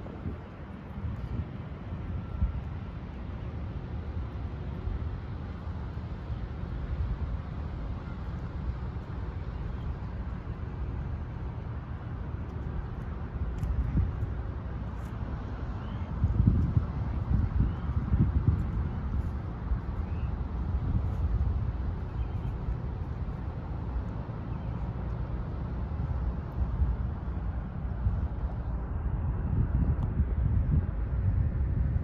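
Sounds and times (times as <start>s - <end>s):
low outdoor rumble: 0.0s - 32.0s
wind buffeting microphone: 0.0s - 32.0s.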